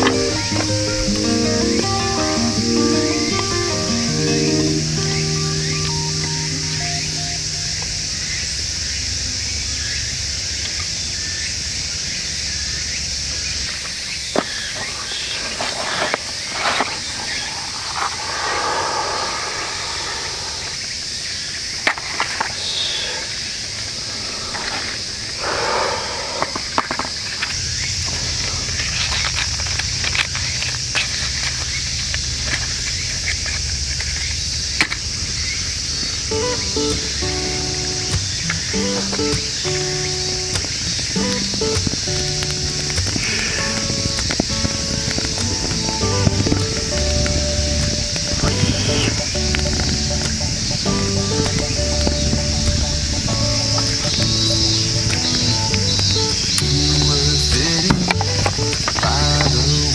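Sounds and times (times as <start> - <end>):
insects buzzing: 0.0 - 59.9
steady high hiss: 0.0 - 59.9
faint bird chirps: 12.2 - 29.3, 47.0 - 57.9.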